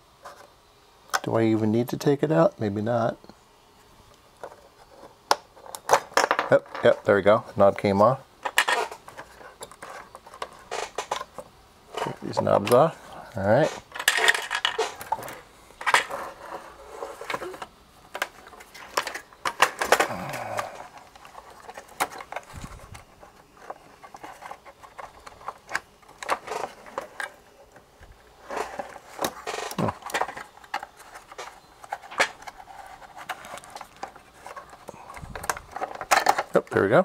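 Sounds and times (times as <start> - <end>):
plastic radio case being handled: 8.4 - 36.8.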